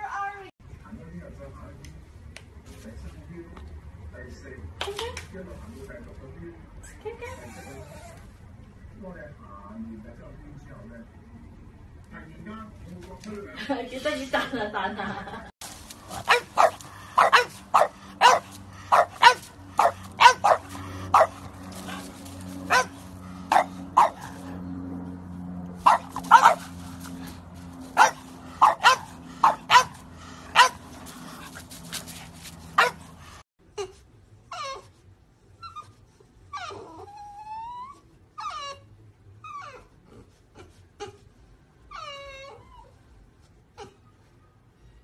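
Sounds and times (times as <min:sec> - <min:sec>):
dog whining and whimpering: 0:07.3 - 0:08.3, 0:34.5 - 0:34.9, 0:36.5 - 0:40.0, 0:41.9 - 0:43.1
puppies barking: 0:15.9 - 0:24.7, 0:25.8 - 0:33.4.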